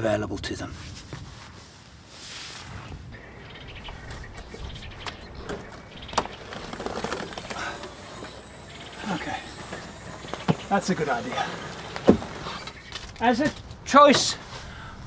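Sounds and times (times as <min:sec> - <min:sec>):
birds chirping: 0:03.1 - 0:14.9
clattering and rustling of tent: 0:03.9 - 0:14.7
sharp knocks: 0:11.9 - 0:12.8.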